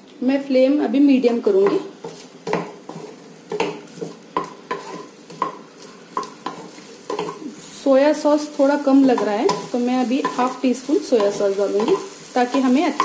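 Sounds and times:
pan sizzling: 0.9 - 13.0
spatula scraping a frying pan: 1.7 - 7.8, 9.0 - 13.0.

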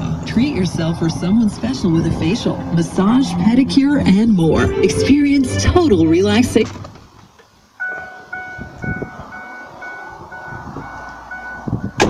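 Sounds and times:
truck warning chime dinging: 7.8 - 12.0.

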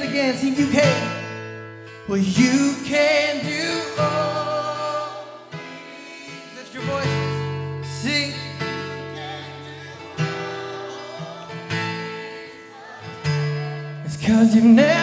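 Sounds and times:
acoustic guitar strumming chords: 0.0 - 15.0
person singing: 8.0 - 15.0.

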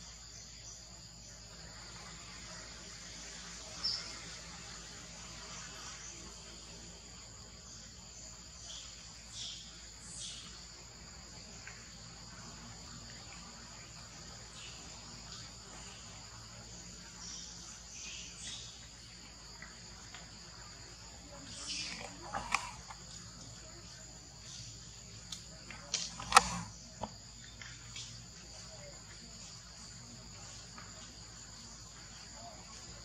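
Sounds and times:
insects chorusing drone: 0.0 - 33.0.

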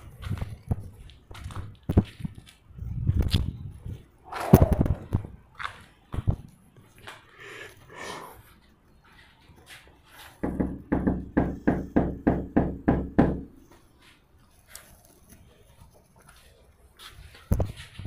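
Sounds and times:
loud knocking on a door: 10.4 - 13.5.

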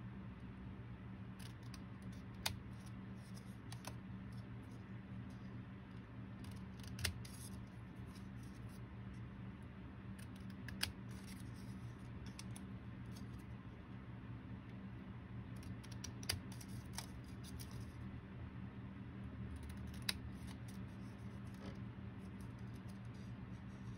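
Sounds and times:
steady low hum: 0.0 - 23.9
scissors snipping paper: 1.4 - 4.0, 6.4 - 8.8, 10.2 - 13.3, 15.6 - 17.9, 19.6 - 21.6.

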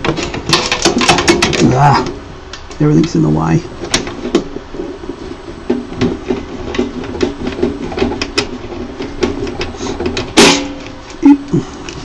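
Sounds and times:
screwdriver and metal parts clattering: 0.0 - 1.8.

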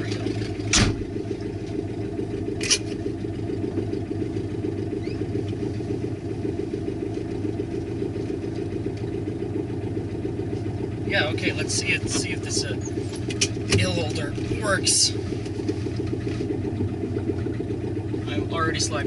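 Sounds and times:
car engine idling: 0.0 - 19.0
short thump: 0.7 - 1.1.

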